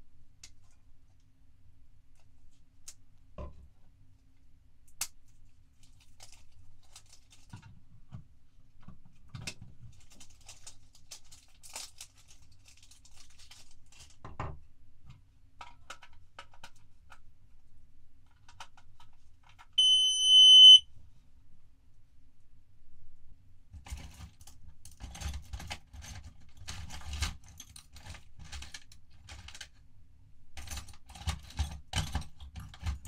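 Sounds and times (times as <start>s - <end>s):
high-pitched electronic beep: 19.8s - 20.8s
faint clicks and knocks: 30.6s - 33.0s.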